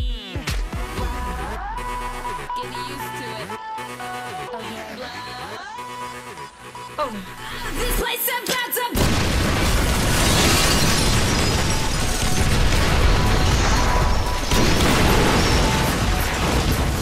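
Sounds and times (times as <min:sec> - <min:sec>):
explosion rumble: 0:09.0 - 0:17.0
dramatic background music: 0:11.1 - 0:17.0.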